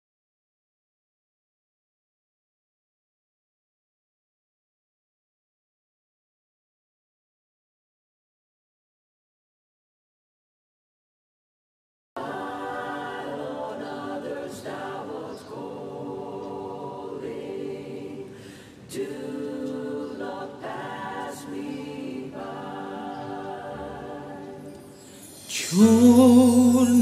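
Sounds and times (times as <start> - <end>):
wordless choir singing: 12.2 - 27.0.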